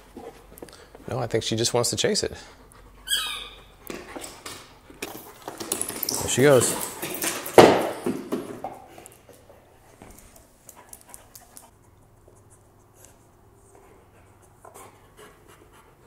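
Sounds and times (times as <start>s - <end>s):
soft dog breathing: 2.1s - 3.1s.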